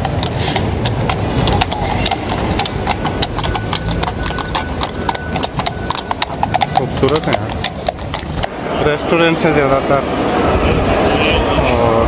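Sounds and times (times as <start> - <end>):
horse hooves clip-clopping: 0.0 - 8.5.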